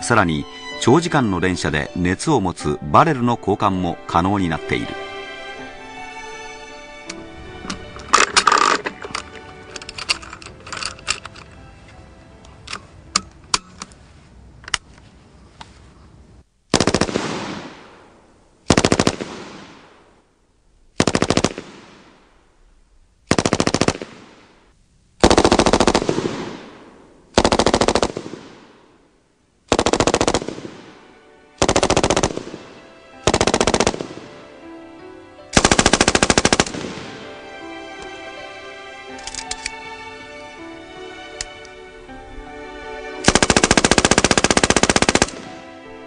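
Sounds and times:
machine gun automatic bursts: 16.7 - 17.6, 18.7 - 19.4, 21.0 - 21.7, 23.3 - 24.2, 25.2 - 26.5, 27.4 - 28.4, 29.7 - 30.6, 31.6 - 32.4, 33.3 - 34.2, 35.6 - 36.8, 43.3 - 45.4
sharp clicks: 39.2 - 39.8.

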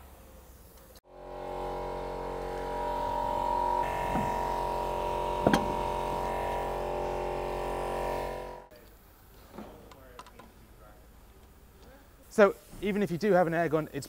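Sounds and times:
air compressor humming: 1.0 - 8.7.

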